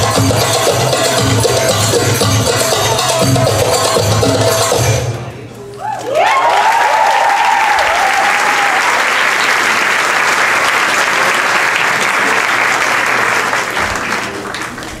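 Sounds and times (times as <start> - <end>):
high cheering call: 5.8 - 9.8
audience applauding: 6.0 - 15.0.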